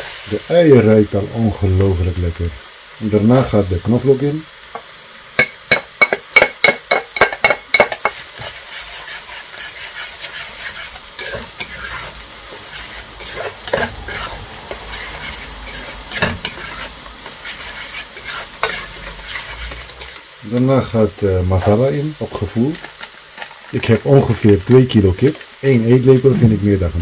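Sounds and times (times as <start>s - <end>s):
onions sizzling in hot oil: 0.0s - 27.0s
spatula scraping a pan: 6.0s - 20.3s.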